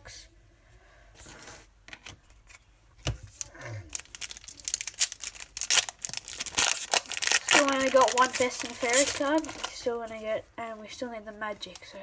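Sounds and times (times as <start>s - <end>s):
foil wrapper crackling: 3.3s - 9.9s.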